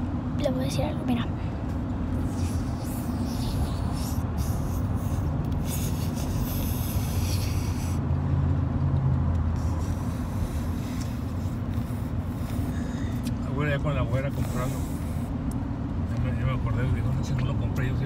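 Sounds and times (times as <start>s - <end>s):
car road and engine rumble: 0.0s - 18.0s.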